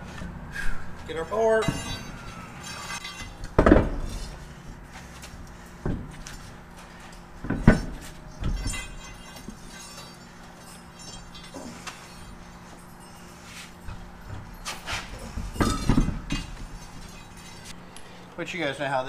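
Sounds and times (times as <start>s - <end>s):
steady low hum: 0.0s - 19.0s
metal clanks and thumps: 1.5s - 4.5s, 5.8s - 17.7s.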